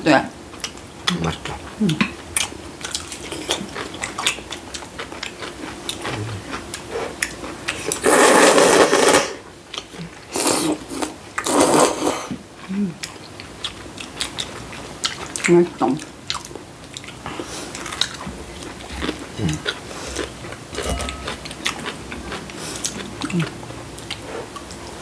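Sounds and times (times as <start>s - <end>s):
noodles slurping: 6.0s - 9.4s.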